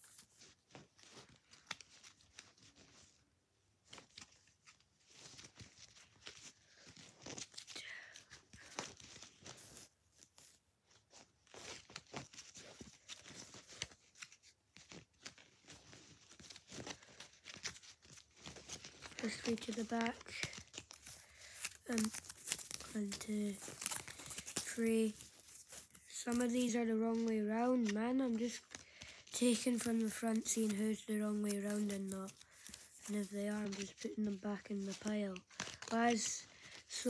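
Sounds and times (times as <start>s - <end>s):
trading cards being shuffled: 0.0s - 3.2s, 3.8s - 37.0s.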